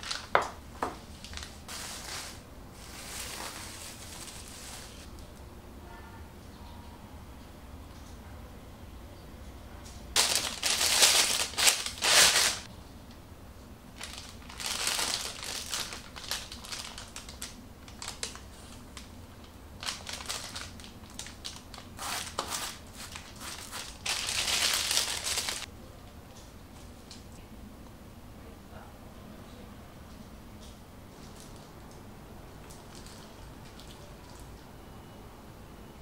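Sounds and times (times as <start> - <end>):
plastic piping bag crinkling: 0.0 - 5.1, 10.2 - 12.7, 13.9 - 25.7, 32.6 - 34.5
spatula scraping plastic bag: 1.3 - 5.1, 22.0 - 25.7.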